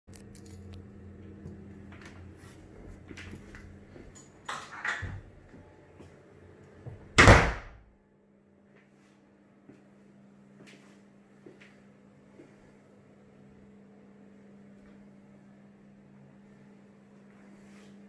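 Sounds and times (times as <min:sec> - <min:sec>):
door shutting with thud: 0:07.2 - 0:07.8.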